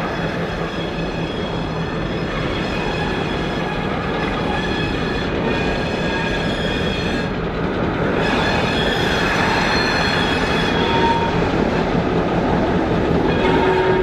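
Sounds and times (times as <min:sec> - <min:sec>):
freight train wheels rumbling: 0:00.0 - 0:14.0
thin wheel squeal: 0:08.2 - 0:11.4.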